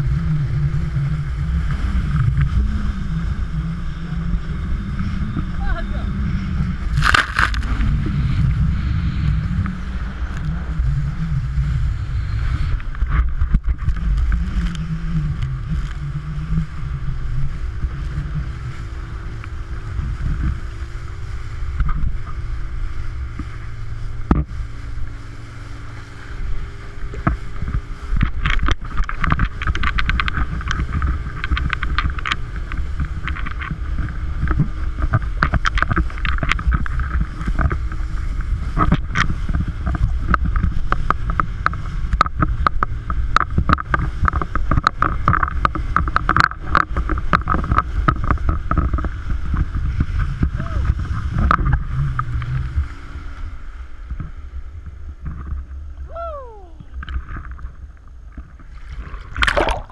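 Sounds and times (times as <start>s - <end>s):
boat engine drone: 0.0s - 59.9s
wind on camera: 0.0s - 59.9s
water rushing: 50.4s - 59.9s.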